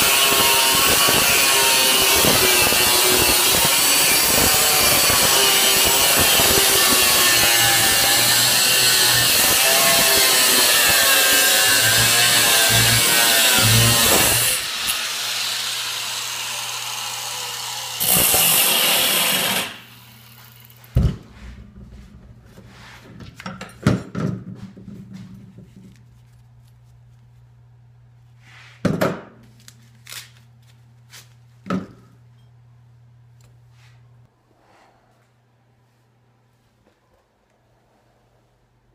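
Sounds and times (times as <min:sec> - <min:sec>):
angle grinder cutting steel: 0:00.0 - 0:20.8.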